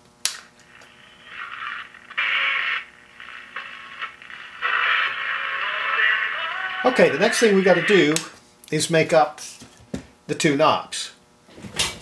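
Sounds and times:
tinny radio from small speaker: 0:00.6 - 0:08.4.

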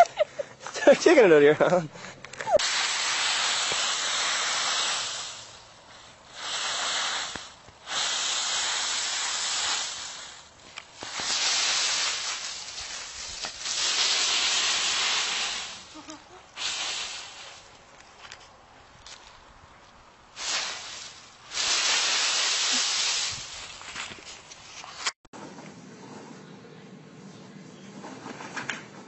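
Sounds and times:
dry leaves crackling and rustling: 0:08.8 - 0:19.5, 0:20.4 - 0:25.0.

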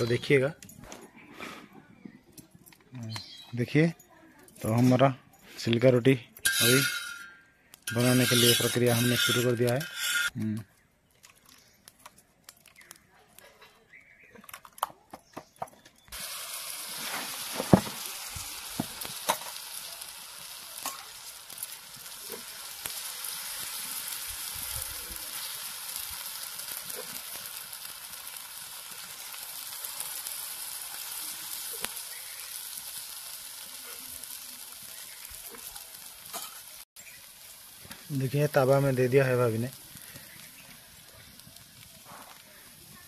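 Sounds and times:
batter sizzling on hot pan: 0:05.8 - 0:10.4, 0:16.0 - 0:43.0.

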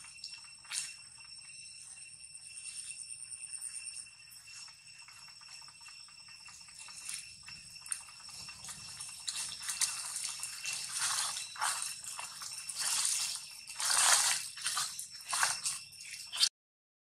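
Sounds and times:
dry leaves crunching underfoot: 0:08.3 - 0:16.5.

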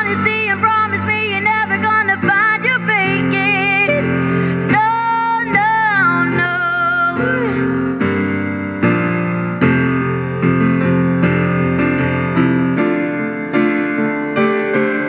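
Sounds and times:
woman singing with vibrato: 0:00.0 - 0:07.7
electric piano chords: 0:00.0 - 0:15.0.

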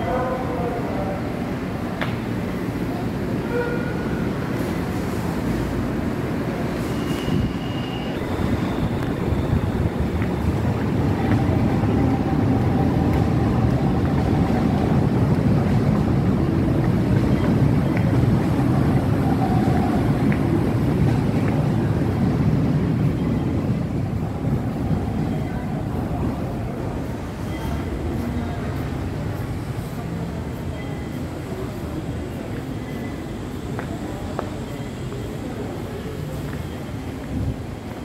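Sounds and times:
light-rail train rumble: 0:00.0 - 0:38.0.

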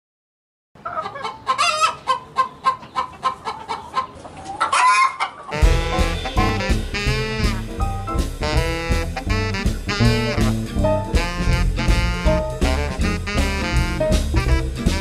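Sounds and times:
chickens clucking: 0:00.8 - 0:06.5, 0:09.2 - 0:11.5
chicken rising squawk: 0:03.1 - 0:07.8, 0:08.4 - 0:13.5
swing band with saxophone: 0:05.5 - 0:15.0.

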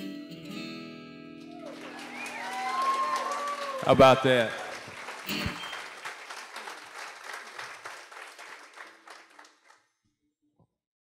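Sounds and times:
audience applauding: 0:01.4 - 0:09.8.

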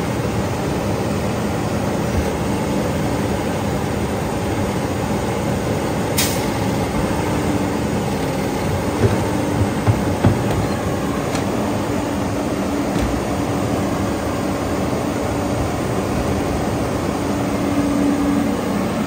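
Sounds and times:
garbage truck engine running: 0:01.3 - 0:17.7
air brake hiss: 0:06.2 - 0:06.7.

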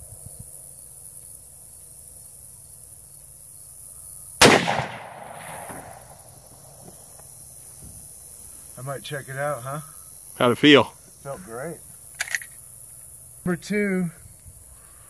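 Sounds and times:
rifle shot: 0:04.4 - 0:06.3.

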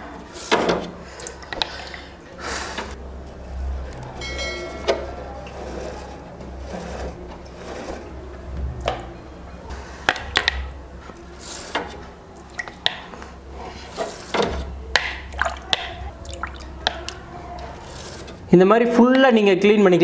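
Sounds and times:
water dripping and splashing: 0:01.2 - 0:02.2, 0:12.4 - 0:13.1, 0:15.0 - 0:17.7
toothbrush scrubbing metal fins: 0:13.5 - 0:14.7, 0:15.4 - 0:18.5.

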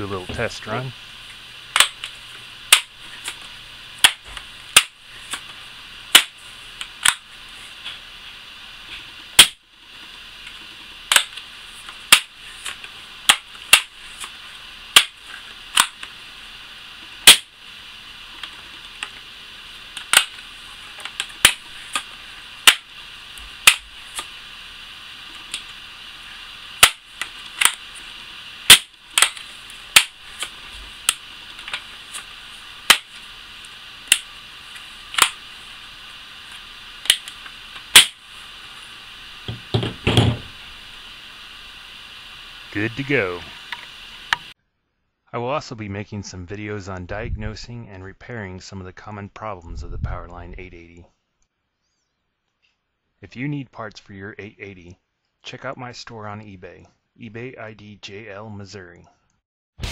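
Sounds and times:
air rifle snaps and clicks: 0:06.1 - 0:07.3, 0:15.0 - 0:16.1, 0:26.8 - 0:27.9, 0:28.7 - 0:32.3, 0:32.9 - 0:33.1, 0:34.1 - 0:34.3, 0:35.1 - 0:35.4, 0:37.0 - 0:38.2.

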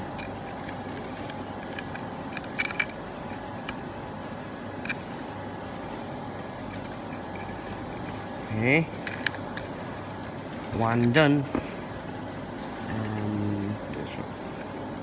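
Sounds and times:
metal hardware clicks: 0:00.0 - 0:03.0
room hum: 0:00.0 - 0:15.0.

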